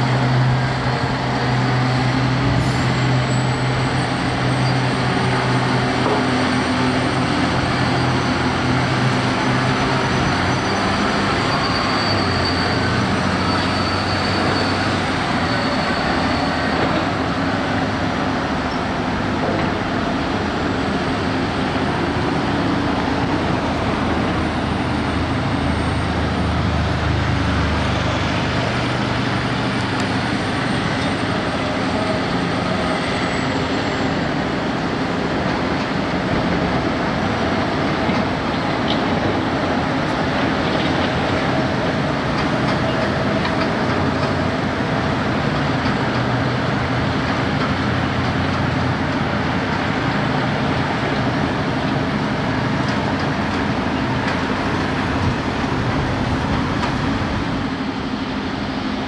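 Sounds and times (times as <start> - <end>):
dump truck diesel engine drone: 0.0 - 59.0
traffic noise: 0.0 - 59.0.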